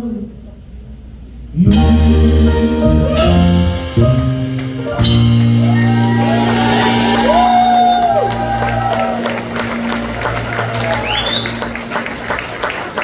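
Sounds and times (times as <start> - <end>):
live rock band playing: 1.6 - 12.4
cymbal crashes: 5.1 - 9.2.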